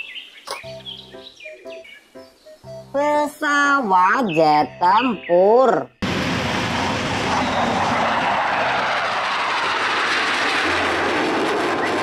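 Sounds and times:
jet engines roaring: 0:06.0 - 0:12.0.

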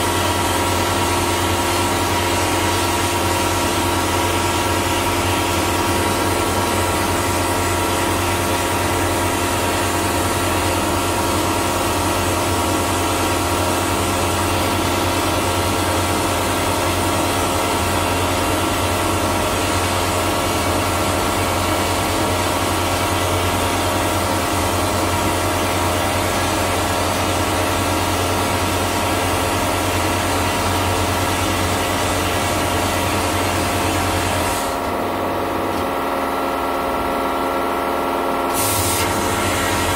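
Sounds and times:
machine hum: 0:00.0 - 0:39.9
hissing air and water spray: 0:38.5 - 0:39.9.

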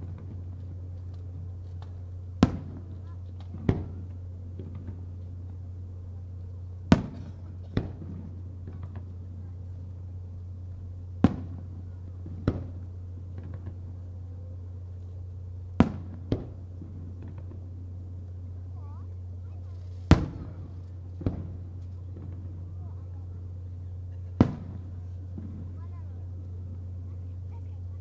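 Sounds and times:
steady low hum: 0:00.0 - 0:28.0
firework shells bursting: 0:19.6 - 0:22.6.

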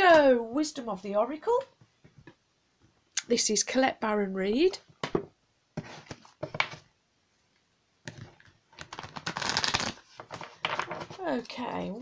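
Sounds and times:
cards shuffling: 0:08.8 - 0:11.1.

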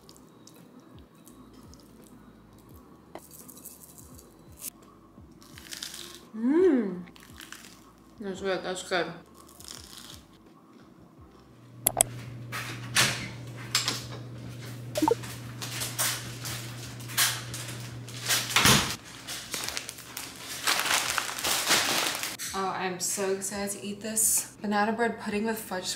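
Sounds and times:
grocery bags rustling: 0:15.4 - 0:22.4.

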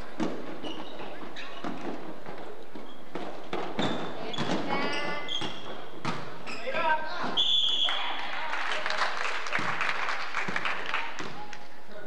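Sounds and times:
sneaker squeaks: 0:00.0 - 0:08.2.

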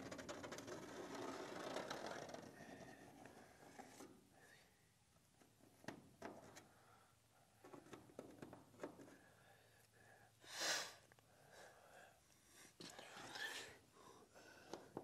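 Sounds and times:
person sniffing: 0:10.4 - 0:11.0.

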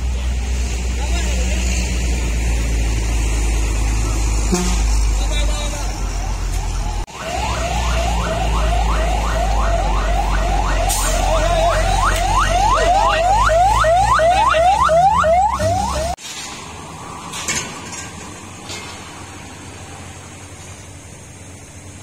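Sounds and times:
electronic alarm whooping: 0:05.6 - 0:16.2.

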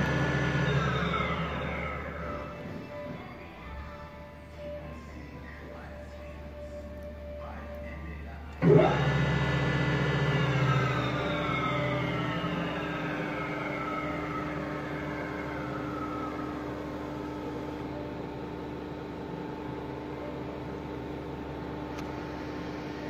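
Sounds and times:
mechanical hum: 0:00.0 - 0:23.0
pillar drill whining: 0:00.0 - 0:23.0.

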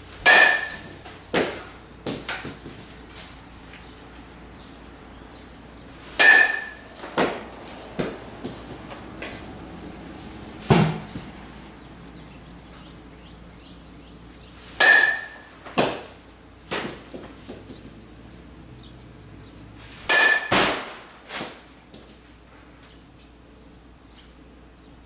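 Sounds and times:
metal bat hitting ball: 0:00.2 - 0:02.7, 0:06.1 - 0:09.4, 0:10.6 - 0:11.3, 0:14.8 - 0:17.2, 0:20.0 - 0:21.6.

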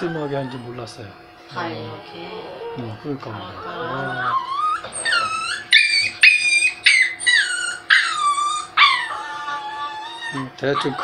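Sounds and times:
electric clippers humming: 0:00.0 - 0:11.0
small dog whining and crying: 0:03.6 - 0:11.0.

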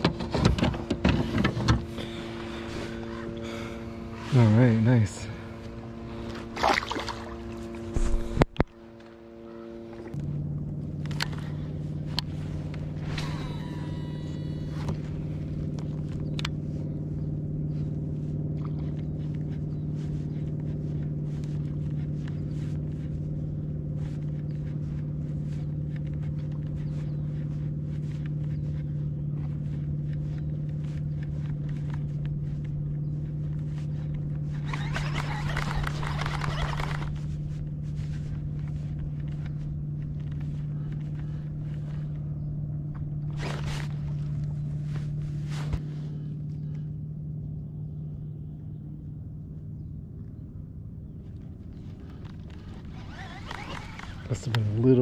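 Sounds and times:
small motor humming: 0:00.0 - 0:48.6, 0:51.0 - 0:55.0
brief whine: 0:06.2 - 0:10.2, 0:12.9 - 0:15.5.

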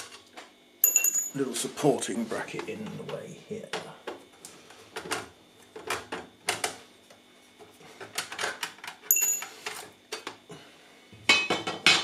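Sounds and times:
metal part ringing: 0:00.8 - 0:01.4, 0:09.1 - 0:09.5.

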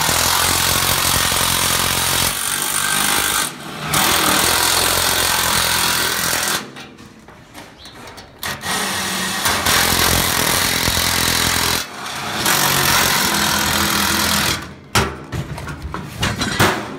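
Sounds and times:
power tool running: 0:00.0 - 0:06.6, 0:08.4 - 0:14.7.

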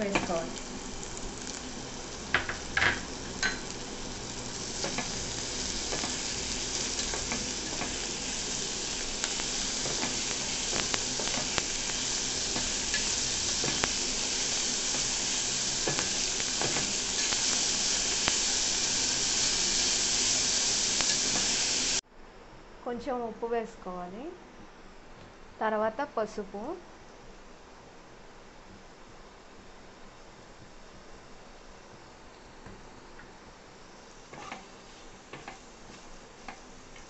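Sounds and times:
food sizzling in oil: 0:00.0 - 0:22.0, 0:33.9 - 0:37.0.

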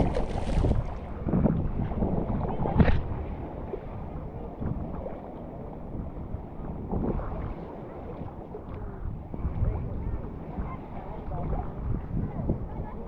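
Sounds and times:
ocean surf: 0:00.0 - 0:01.4
wind on the microphone: 0:00.0 - 0:13.0.

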